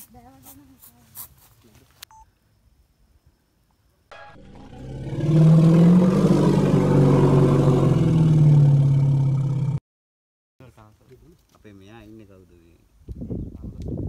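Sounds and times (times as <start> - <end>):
low pitched drone: 4.1 - 9.8.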